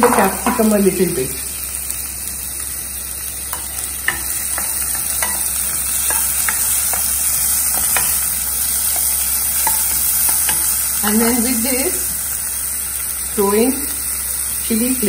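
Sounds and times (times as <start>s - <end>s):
vegetables sizzling in a pot: 0.0s - 15.0s.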